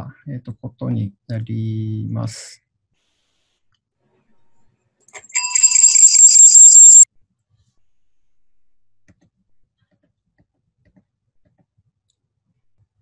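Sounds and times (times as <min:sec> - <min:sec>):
electronic alarm ringing: 0:05.2 - 0:07.1.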